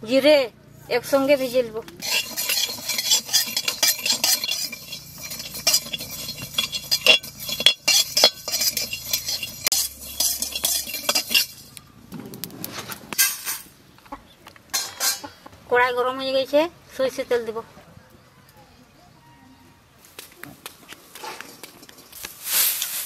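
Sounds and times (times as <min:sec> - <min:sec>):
spatula scraping a pan: 0:01.1 - 0:11.8
seeds rattling in a pan: 0:02.0 - 0:13.7, 0:21.2 - 0:23.0
seeds tipped into a steel bowl: 0:21.2 - 0:23.0.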